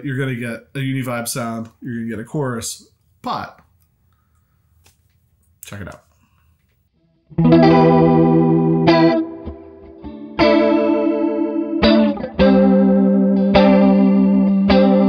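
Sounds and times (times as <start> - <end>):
electric guitar chords with chorus: 7.3 - 15.0.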